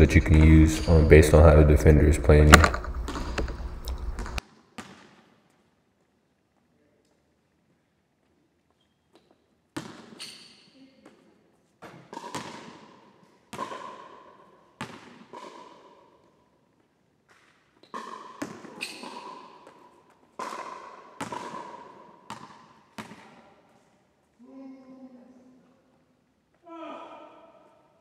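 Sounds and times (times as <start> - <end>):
basketball hitting hoop: 2.2 - 5.2, 20.4 - 23.4
basketball bouncing on hardwood floor: 2.5 - 5.2, 11.8 - 12.9, 14.8 - 15.6, 18.0 - 19.8, 20.4 - 23.4.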